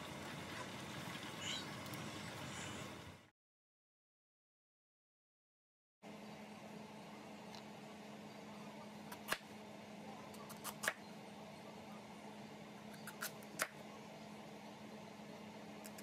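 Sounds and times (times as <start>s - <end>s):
steady low hum: 6.0s - 16.0s.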